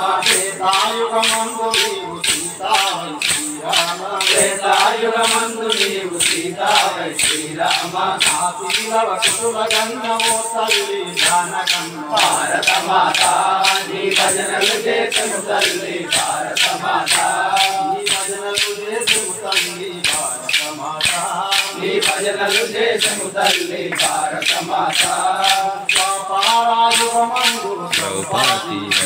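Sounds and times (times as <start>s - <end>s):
men singing together: 0.0s - 29.0s
wooden clappers clacking: 0.0s - 29.0s.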